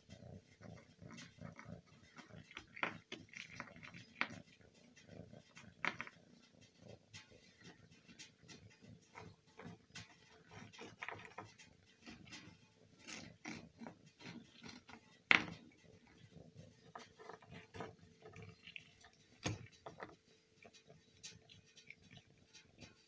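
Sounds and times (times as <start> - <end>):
cat crunching biscuit: 10.4 - 22.8.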